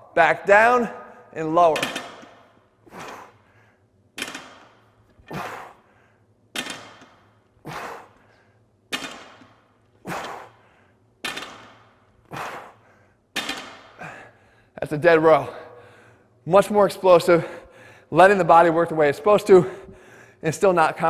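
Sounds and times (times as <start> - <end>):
sharp hard breaths: 7.6 - 8.7, 10.0 - 11.0.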